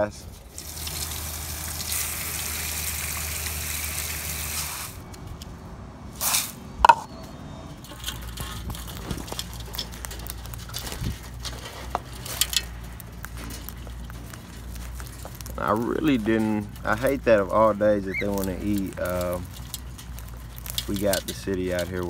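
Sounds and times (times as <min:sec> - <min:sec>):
water spraying: 0:00.0 - 0:05.0.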